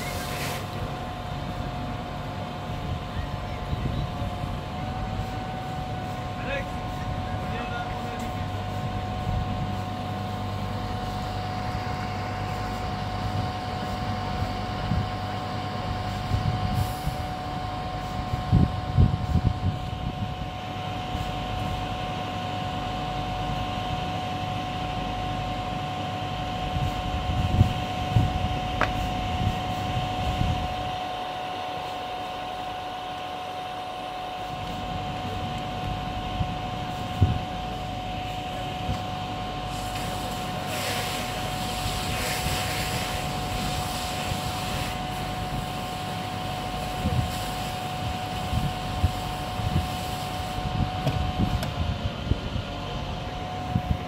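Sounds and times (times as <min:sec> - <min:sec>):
water hissing on hot metal: 0:00.0 - 0:00.8, 0:39.7 - 0:46.1, 0:47.3 - 0:47.9
fire engine pump drone: 0:00.0 - 0:54.0.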